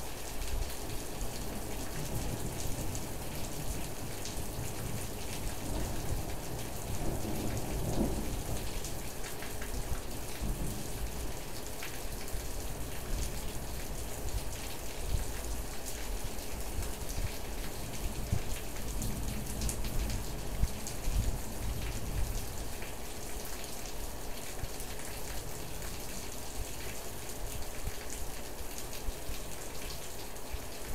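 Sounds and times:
steady rain falling: 0.0 - 30.9
low rumble of thunder: 1.6 - 9.0, 10.2 - 11.4, 17.2 - 22.8.

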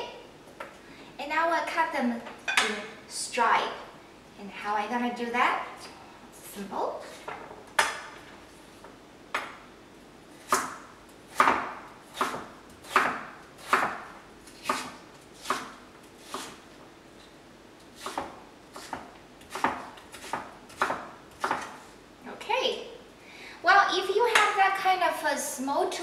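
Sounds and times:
knife chopping on wooden board: 10.5 - 16.6, 18.0 - 21.8.

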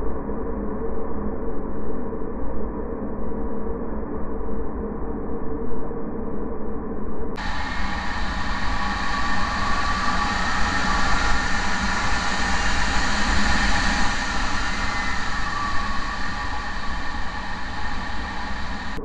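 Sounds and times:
faint steady whine: 7.2 - 19.0
air rushing over camera: 7.4 - 19.0
low rumble: 7.4 - 19.0.

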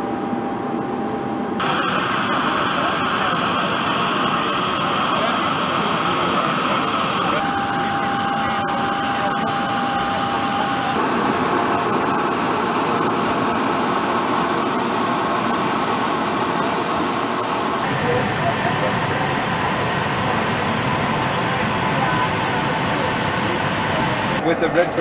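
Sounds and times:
engine noise: 0.0 - 25.0
faint voices: 2.4 - 11.0.

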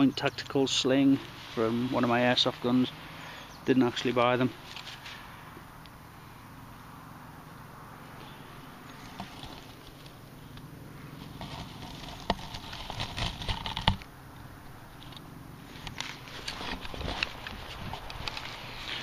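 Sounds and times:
dry grass and leaves rustling: 0.0 - 19.0.

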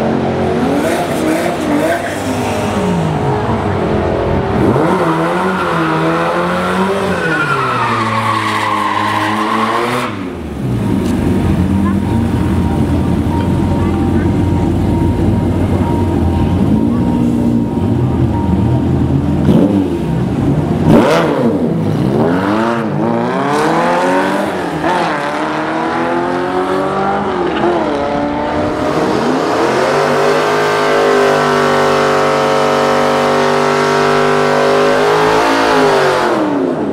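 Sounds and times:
cars accelerating hard: 0.0 - 36.9
steady engine note: 10.4 - 23.2.

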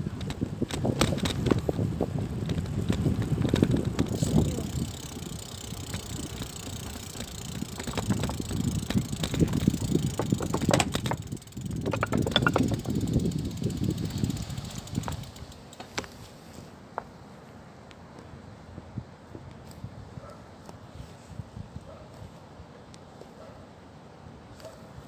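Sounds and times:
bicycle rumbling over rough concrete: 0.0 - 17.1.

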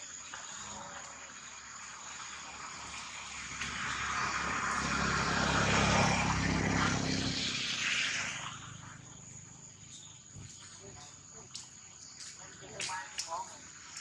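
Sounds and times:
passing engine: 2.3 - 11.3.

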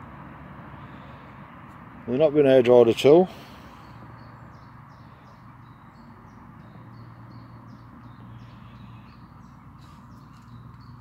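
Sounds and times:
small bird chirping: 3.9 - 11.0.

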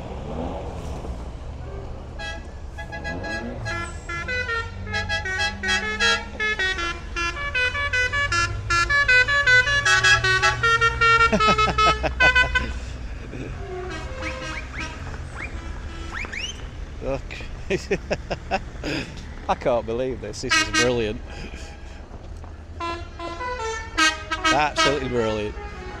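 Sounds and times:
van engines running: 0.0 - 26.0
musical van horn tune: 1.6 - 16.8, 20.3 - 22.0, 22.7 - 26.0.

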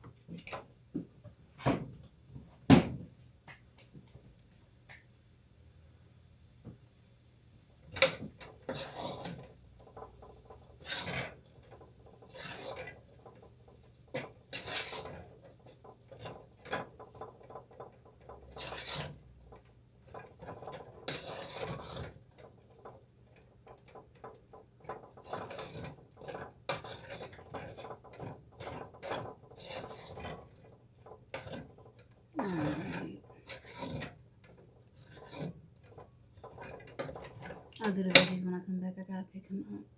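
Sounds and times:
rubbing and scraping strokes: 8.6 - 37.7.

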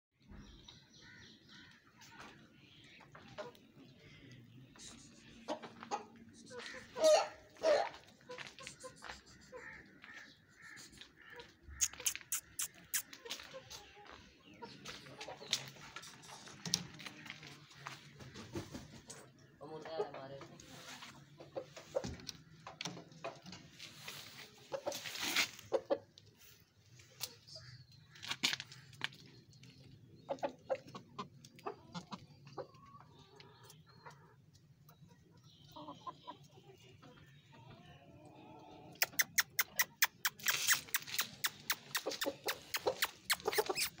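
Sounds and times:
chickens clucking: 0.3 - 44.0.

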